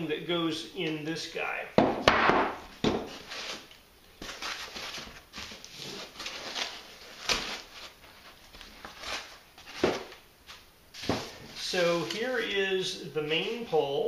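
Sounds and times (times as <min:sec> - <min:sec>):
foam packaging rubbing and creaking: 0:03.1 - 0:10.2, 0:11.0 - 0:13.7.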